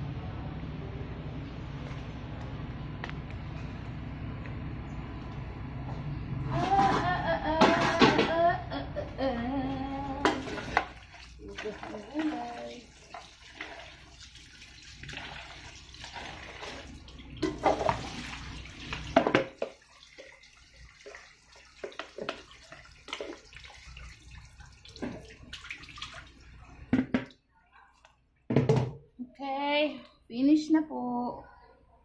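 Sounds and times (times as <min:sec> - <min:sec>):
tap water splashing into basin: 0:10.2 - 0:27.4.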